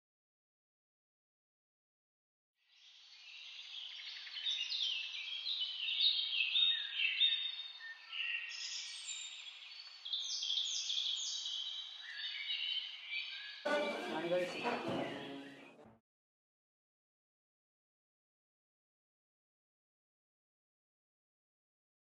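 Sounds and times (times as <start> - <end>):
birds chirping and singing: 2.7 - 15.7.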